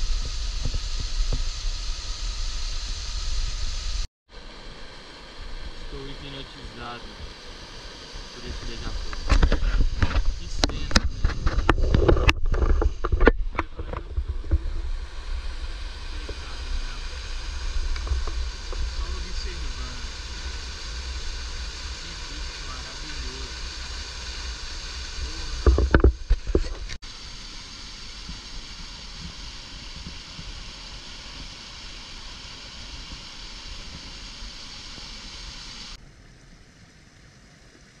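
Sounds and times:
wind rumbling on microphone: 0.0s - 27.0s
steady rush of noise: 0.0s - 36.2s
knocks and scrapes against rock: 9.1s - 14.8s, 25.6s - 27.0s.

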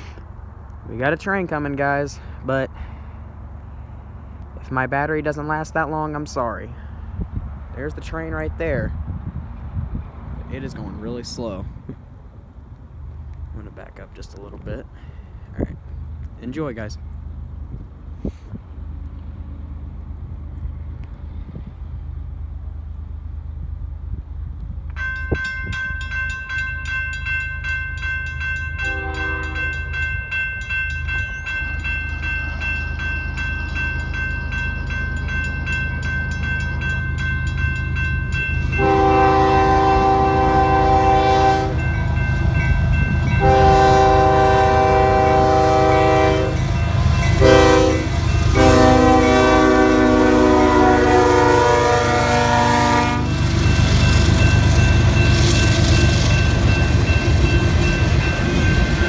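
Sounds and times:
locomotive rumble: 0.0s - 59.0s
railroad crossing bell ringing: 24.9s - 59.0s
locomotive air horn blasts: 28.8s - 29.8s, 38.8s - 41.9s, 43.4s - 53.4s.

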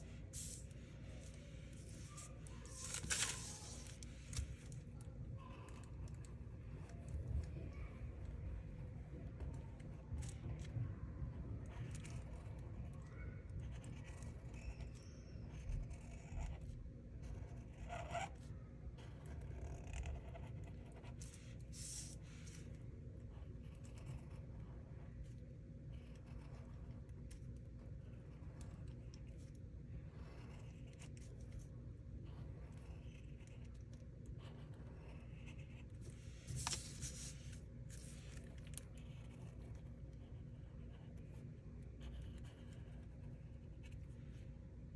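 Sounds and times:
marker rubbing on paper: 0.0s - 4.6s, 13.6s - 18.4s, 19.0s - 22.7s, 34.4s - 39.6s
marker scratching on paper: 0.0s - 4.8s, 11.6s - 25.2s, 25.9s - 44.3s
paper rustling: 0.3s - 4.8s, 36.0s - 38.8s
low steady rumble: 13.6s - 44.9s.

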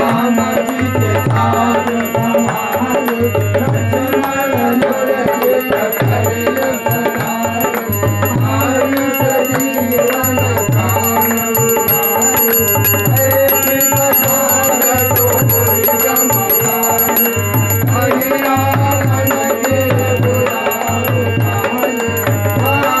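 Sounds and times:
drum beaten in steady rhythm: 0.0s - 23.0s
brass hand bell ringing: 5.4s - 23.0s.

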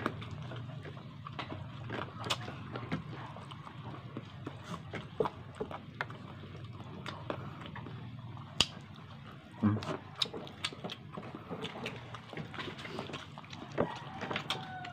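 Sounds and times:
chewing and sucking off bone: 0.0s - 14.9s
wet lip smacks: 8.6s - 8.8s.

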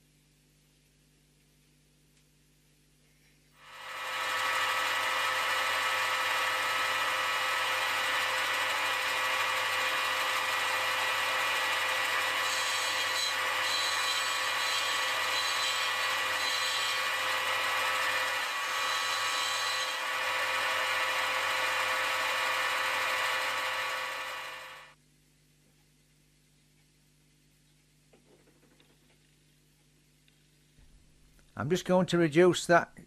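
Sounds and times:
high grinding hiss: 3.6s - 24.9s
bench grinder motor hum: 3.6s - 25.0s.

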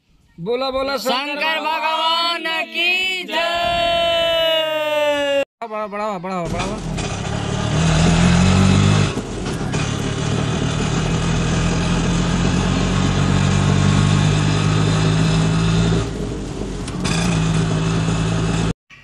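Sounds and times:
auto-rickshaw engine running: 6.5s - 18.7s.

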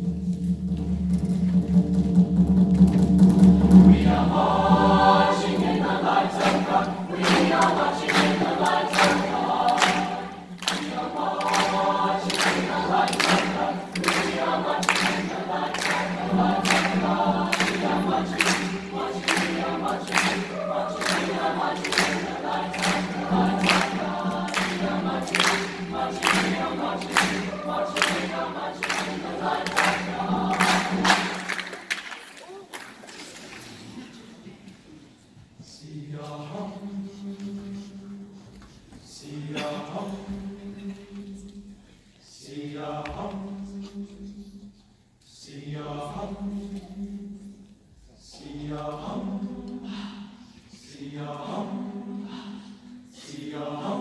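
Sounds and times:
mixed choir singing unaccompanied: 3.6s - 32.0s, 35.6s - 54.0s
people clapping in time: 5.4s - 34.1s.

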